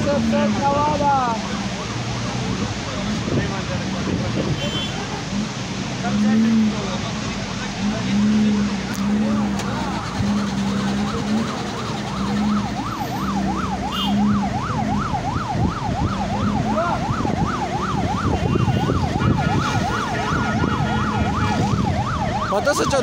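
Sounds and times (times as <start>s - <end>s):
siren yelping: 0.0s - 3.4s, 8.1s - 23.0s
traffic noise: 0.0s - 23.0s.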